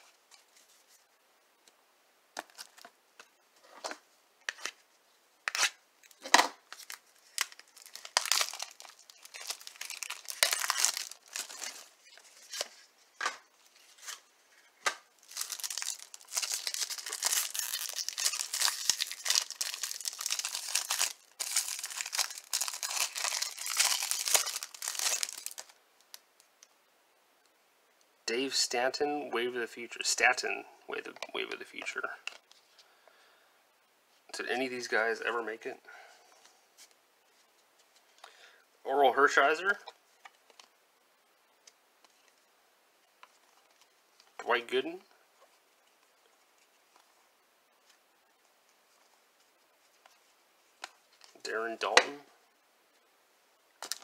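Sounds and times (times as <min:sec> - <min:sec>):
foil wrapper crinkling: 0:06.7 - 0:12.7, 0:15.2 - 0:25.8, 0:53.8 - 0:54.0.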